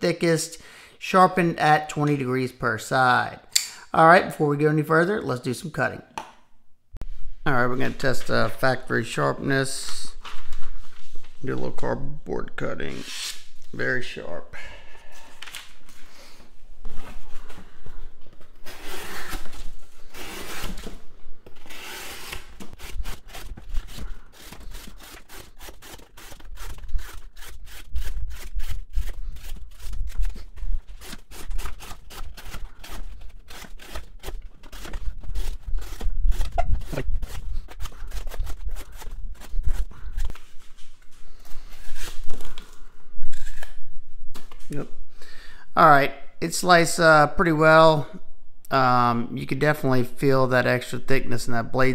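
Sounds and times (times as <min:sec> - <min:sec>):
knife cutting cardboard: 0:18.6 - 0:40.4.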